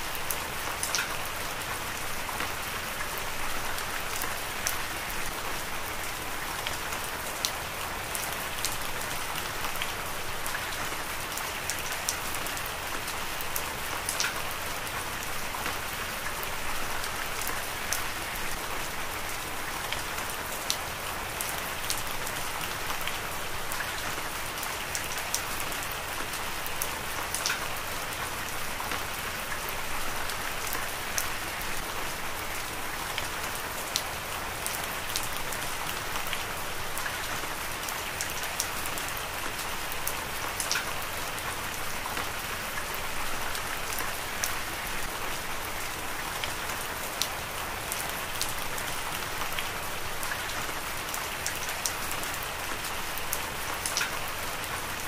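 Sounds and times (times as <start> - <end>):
heavy rain: 0.0 - 55.0
raindrops ticking on a surface: 0.0 - 55.0.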